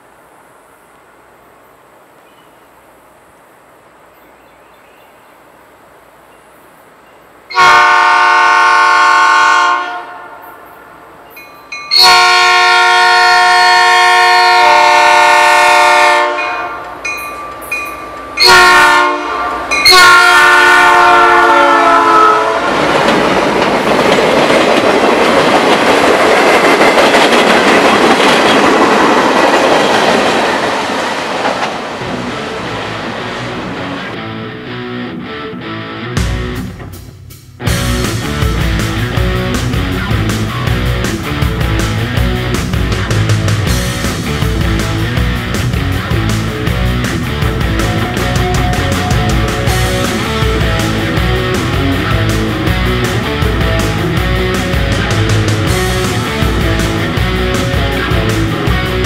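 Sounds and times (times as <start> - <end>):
train rumbling past: 5.4 - 34.4, 36.2 - 59.0
locomotive air horn blasts: 7.5 - 10.7, 11.9 - 17.0, 18.4 - 22.8
train wheel clatter: 22.6 - 32.2, 38.1 - 59.0.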